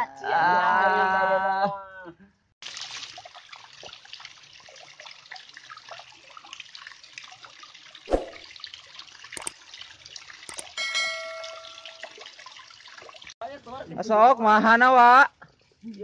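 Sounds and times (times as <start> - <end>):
water trickling over rocks: 2.6 - 14.0, 15.3 - 16.0
clicks: 10.5 - 10.8
short ringing chime: 10.5 - 12.2.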